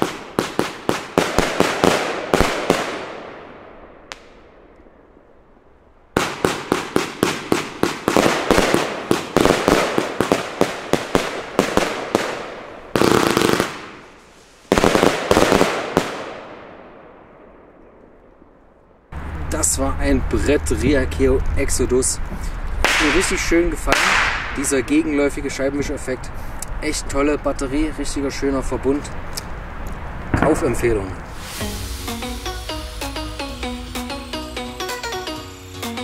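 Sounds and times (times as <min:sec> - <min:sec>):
firework battery volleys: 0:31.2 - 0:33.4.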